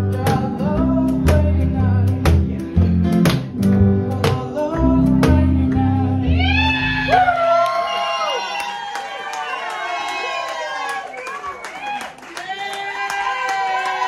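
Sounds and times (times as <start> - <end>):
upright bass and strummed guitars: 0.0 - 7.5.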